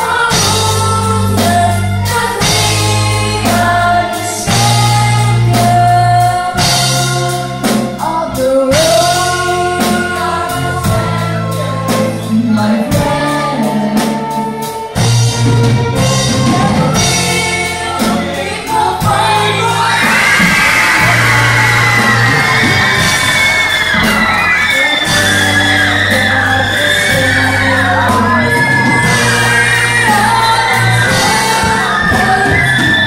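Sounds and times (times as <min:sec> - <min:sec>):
children's choir: 0:00.0 - 0:33.0
string orchestra: 0:00.0 - 0:33.0
percussive beat: 0:15.6 - 0:33.0
crowd shouting: 0:17.8 - 0:33.0
woman singing into microphone: 0:24.7 - 0:33.0.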